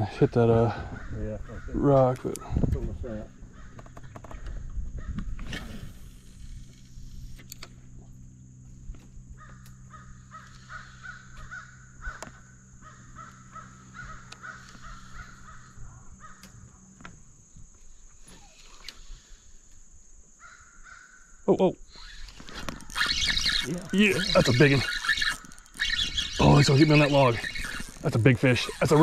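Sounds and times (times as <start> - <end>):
low steady hum: 0.0 - 20.4
crows cawing: 0.6 - 2.1, 3.4 - 5.2, 9.4 - 16.8, 20.4 - 21.4.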